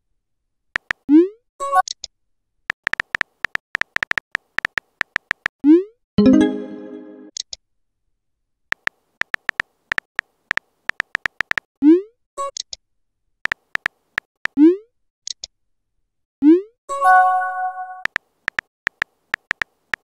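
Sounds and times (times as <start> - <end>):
phone keyboard typing clicks: 0.8 - 1.0, 2.7 - 5.5, 8.7 - 11.7, 13.5 - 14.3, 18.0 - 20.0.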